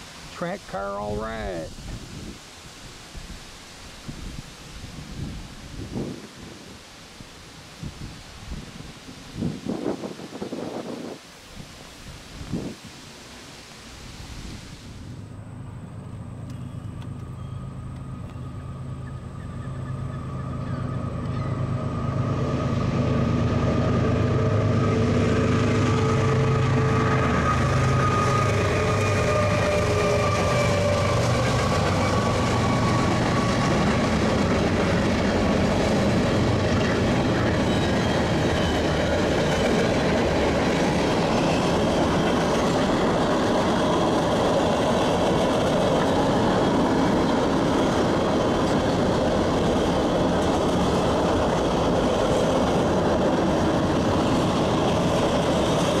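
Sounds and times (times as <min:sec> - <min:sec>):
diesel locomotive engines: 0:14.8 - 0:56.0
freight cars rumbling and clattering: 0:30.5 - 0:56.0.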